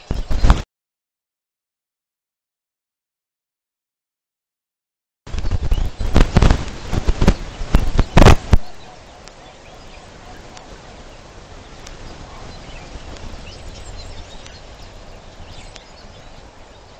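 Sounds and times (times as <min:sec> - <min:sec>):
distorted crackling bursts: 0:00.0 - 0:00.6, 0:05.3 - 0:09.4, 0:10.0 - 0:16.2
high bird chirps: 0:05.4 - 0:16.9
outdoor hiss: 0:05.9 - 0:16.9.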